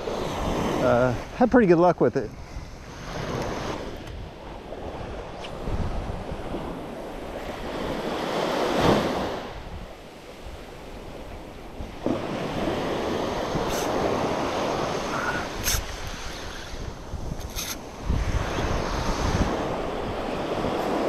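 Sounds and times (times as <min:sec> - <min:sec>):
small waves breaking on beach: 0:00.0 - 0:21.0.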